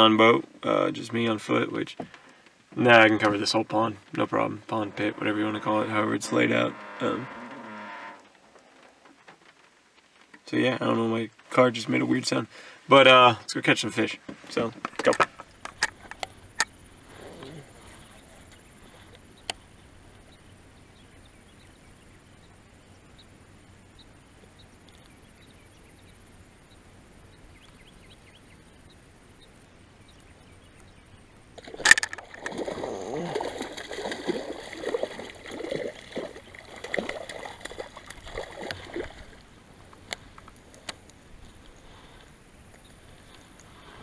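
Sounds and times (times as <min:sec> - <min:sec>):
fish splashing in water: 0:31.6 - 0:39.5.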